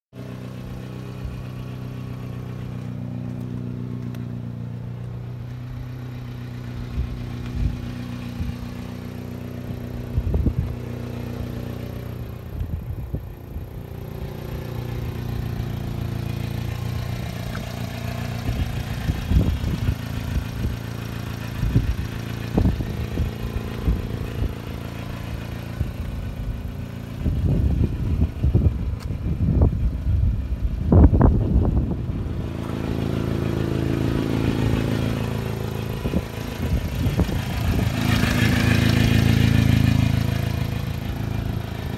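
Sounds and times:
truck engine idling: 0.2 - 41.9
low rumbles and thumps: 9.6 - 10.9, 21.6 - 33.0.

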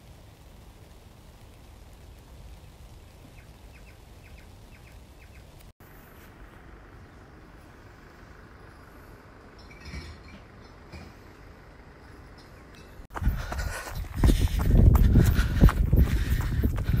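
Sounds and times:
rain hissing: 0.0 - 5.8.

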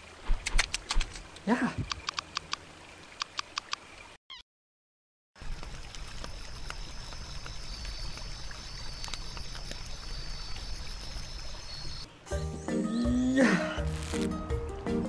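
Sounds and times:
small crackles: 5.4 - 11.4, 13.9 - 14.3
insects chirring: 6.2 - 12.1.

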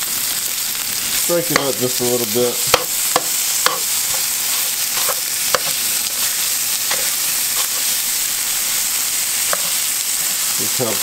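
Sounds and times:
fish sizzling in a frying pan: 0.0 - 11.0
metal tongs clicking on pan: 2.7 - 5.8, 6.9 - 7.9.

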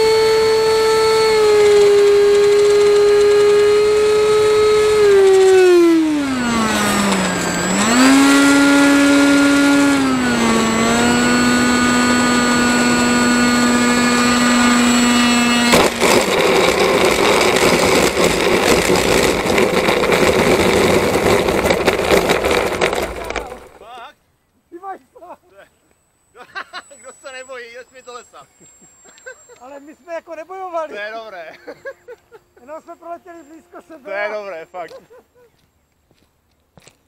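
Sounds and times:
electric ducted fan whining: 0.0 - 36.1
wheels rattling on concrete: 1.7 - 11.2, 15.5 - 23.9.

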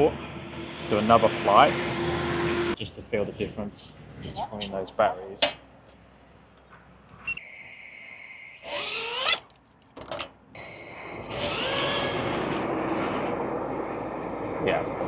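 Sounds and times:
drone buzzing in flight: 0.0 - 2.8, 10.6 - 15.0
drone motors whining: 7.3 - 9.4, 10.0 - 14.5
drone motors spinning up: 8.0 - 9.4, 10.0 - 13.5.

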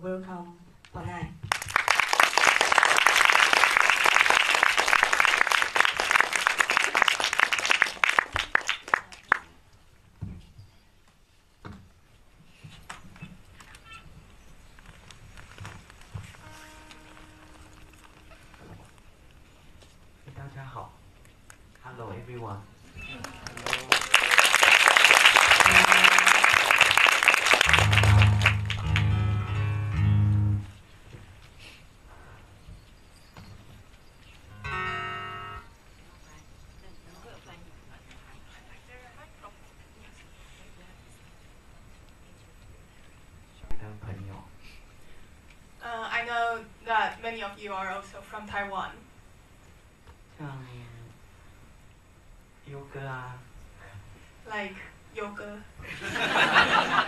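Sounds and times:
audience applauding: 1.5 - 9.5, 23.0 - 29.6
acoustic guitar plucked: 27.6 - 30.8, 34.5 - 35.7.

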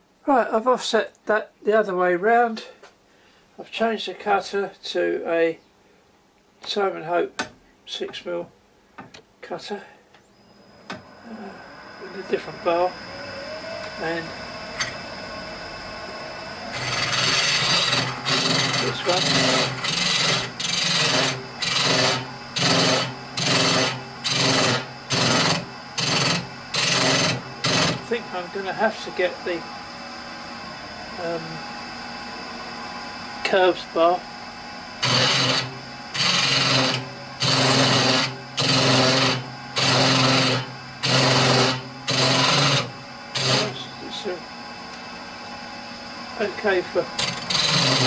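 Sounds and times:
tool scraping wood on lathe: 16.6 - 29.3, 35.0 - 44.4, 46.4 - 48.0.

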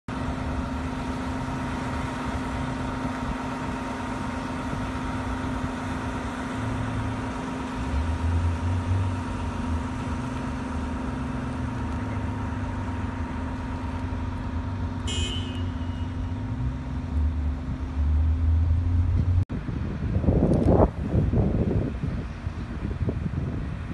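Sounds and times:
engine-like hum: 0.1 - 23.9
wind buffeting microphone: 19.2 - 23.9.

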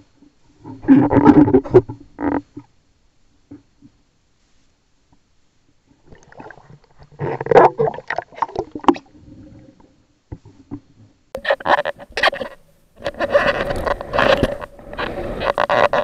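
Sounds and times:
water splashing and gurgling: 6.0 - 9.8.

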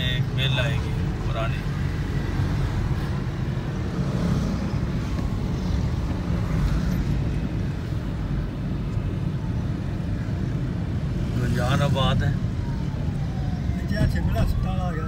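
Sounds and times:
car interior rumble: 0.0 - 11.6.

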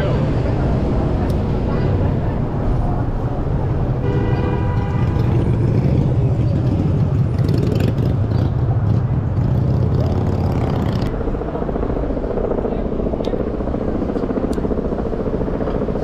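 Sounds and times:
rumble of passing cars and trucks: 0.0 - 16.0
vehicle horn: 4.0 - 5.9.

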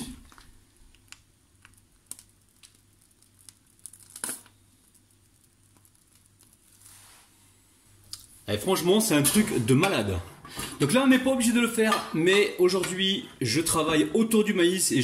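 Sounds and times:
plastic piping bag crinkling: 0.0 - 7.1.

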